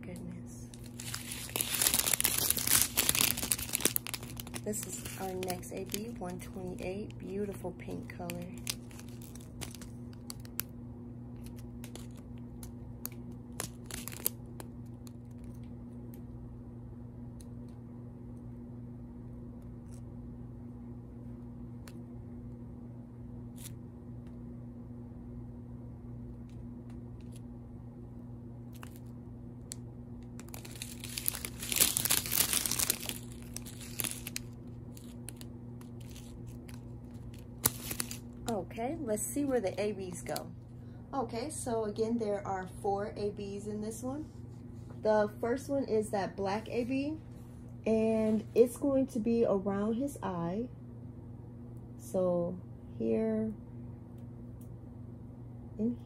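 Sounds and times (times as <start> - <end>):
steady low hum: 0.0 - 56.0
plastic bags clicking and crinkling: 0.7 - 10.7, 11.4 - 15.7, 28.7 - 29.1, 30.3 - 38.5.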